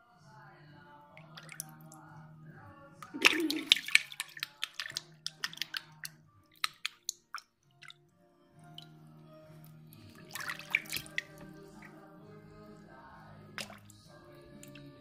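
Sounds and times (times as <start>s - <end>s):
drips and small splashes: 1.1s - 2.1s, 3.0s - 12.0s, 13.6s - 15.0s
shallow water sloshing: 10.2s - 11.9s.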